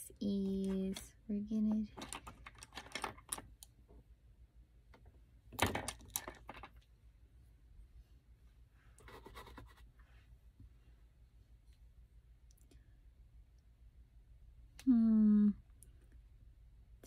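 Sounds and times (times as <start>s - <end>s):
makeup products clicking and rattling: 1.8s - 3.6s, 5.5s - 6.8s.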